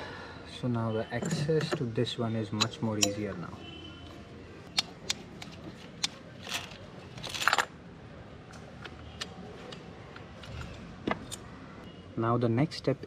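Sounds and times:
spanner clinking on metal nuts: 2.5s - 3.4s.

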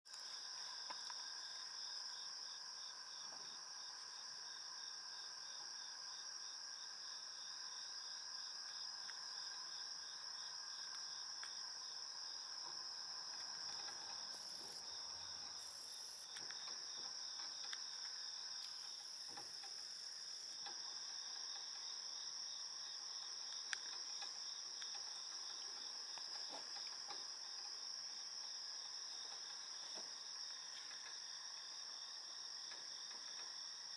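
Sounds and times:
crickets trilling: 0.1s - 33.9s
faint clicks and scratches: 12.4s - 22.1s, 23.2s - 28.1s.

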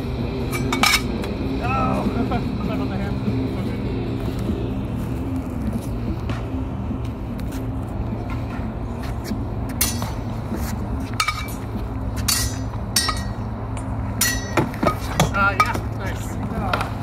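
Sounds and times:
metal swords clinking: 9.8s - 10.2s, 11.2s - 11.6s, 12.2s - 13.4s, 14.2s - 15.8s.

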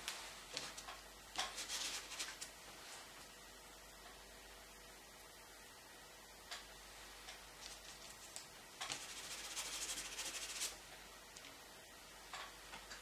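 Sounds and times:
paintbrush strokes: 1.5s - 3.1s, 7.6s - 10.8s.

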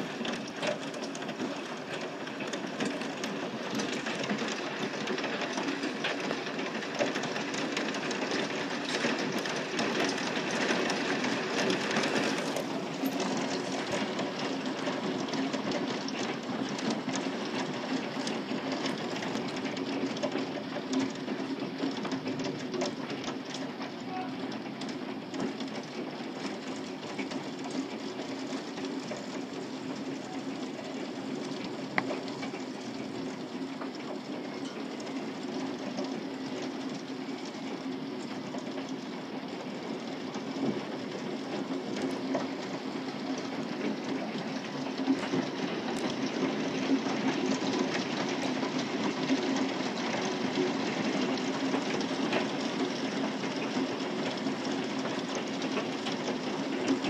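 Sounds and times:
hail clattering: 0.0s - 57.0s.

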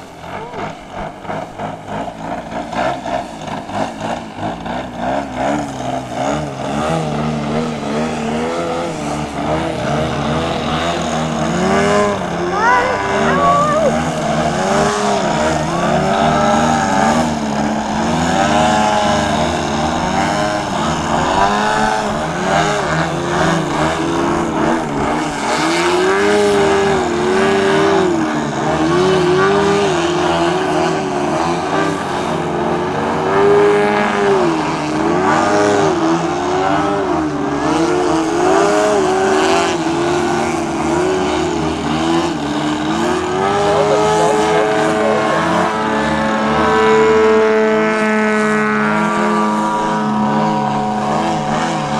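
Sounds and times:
model plane engines revving: 0.0s - 51.9s.

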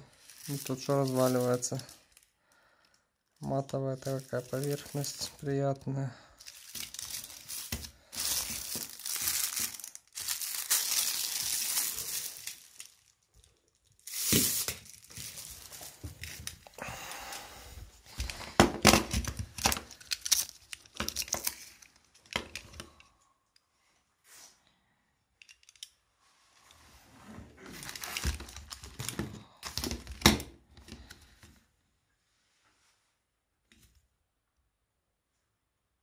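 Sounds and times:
plastic packaging crinkling and tearing: 0.0s - 2.3s, 3.4s - 5.8s, 6.4s - 16.9s, 18.1s - 23.0s, 27.6s - 30.4s.

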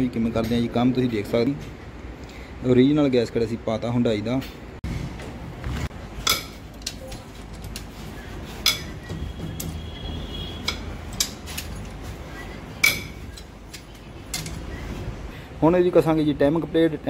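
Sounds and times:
wrench clinking on bolts: 6.2s - 7.9s, 8.6s - 9.8s, 10.6s - 12.0s, 12.8s - 14.6s.

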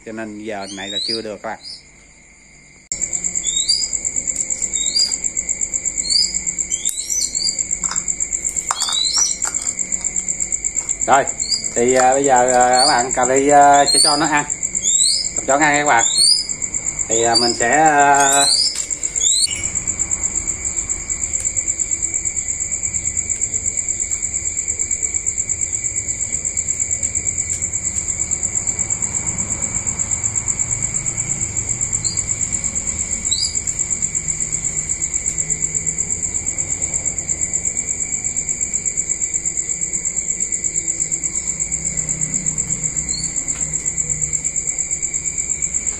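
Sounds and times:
crickets chirping: 0.0s - 45.9s.

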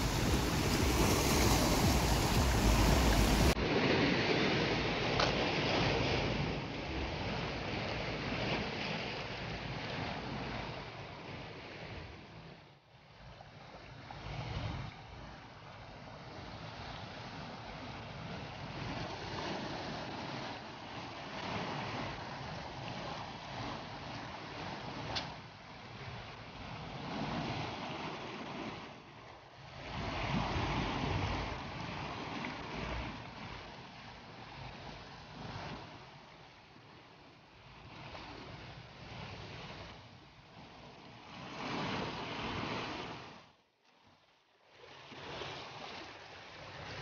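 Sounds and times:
low rumble: 0.0s - 3.6s
waves washing against rocks: 0.0s - 9.6s
wind on microphone: 0.0s - 12.3s, 29.6s - 36.4s
sea surf against rocks: 0.0s - 12.6s, 13.9s - 43.6s, 44.8s - 47.0s.

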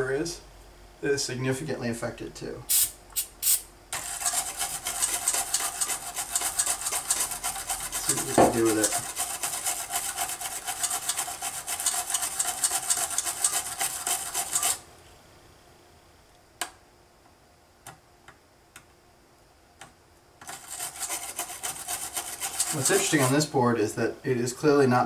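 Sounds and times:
brush scrubbing circuit board: 4.0s - 14.8s, 20.4s - 23.5s.

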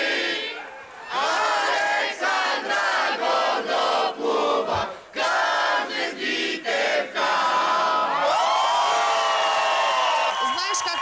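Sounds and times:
crowd chanting and shouting: 0.0s - 8.4s.

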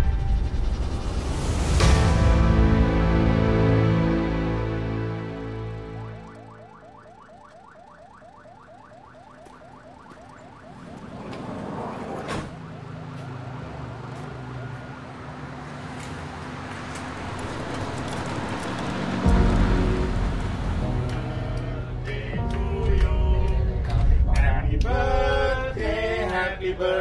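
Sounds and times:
rising rush of noise: 0.0s - 7.0s, 16.2s - 24.3s
ambulance siren yelping: 4.3s - 21.2s.

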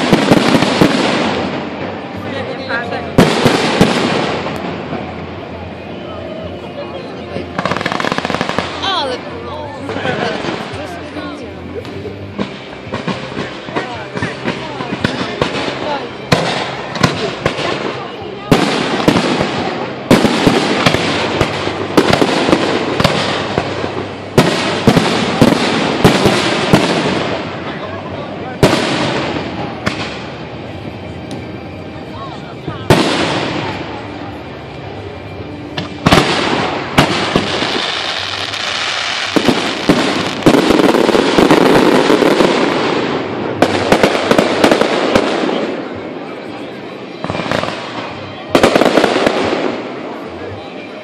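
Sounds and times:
firework bangs: 0.0s - 6.7s, 7.3s - 51.0s
firework crackling: 0.0s - 51.0s.

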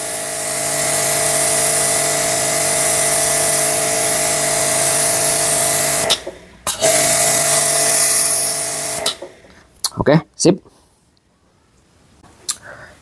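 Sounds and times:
water jet hissing: 0.0s - 9.3s
pressure washer motor hum: 0.0s - 9.4s.

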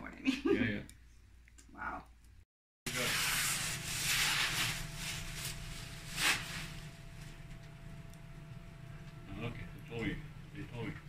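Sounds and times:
rubbing and rustling handling noise: 2.9s - 7.6s.

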